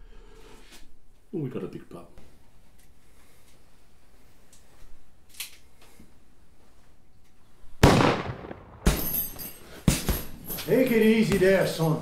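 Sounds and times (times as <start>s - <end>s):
handgun shots: 7.8s - 9.3s.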